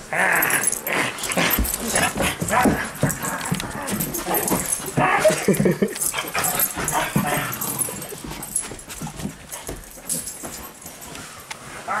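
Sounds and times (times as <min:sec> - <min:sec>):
dog crying during play: 0:01.6 - 0:07.9.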